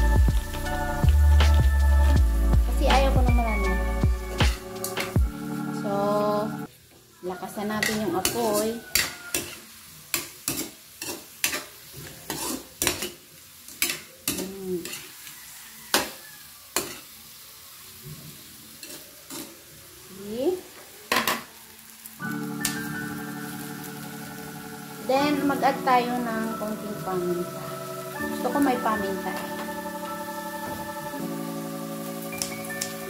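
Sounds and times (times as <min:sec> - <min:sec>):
frying oil sizzling: 0:00.0 - 0:33.0
spatula scraping metal wok: 0:07.6 - 0:13.2, 0:13.8 - 0:16.1, 0:18.8 - 0:19.6.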